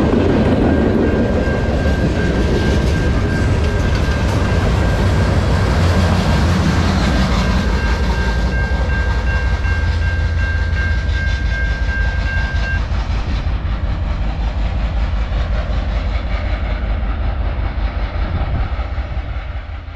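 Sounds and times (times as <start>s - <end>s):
level-crossing warning bell: 0.0s - 13.0s
freight train rumbling and clacking: 0.0s - 19.9s.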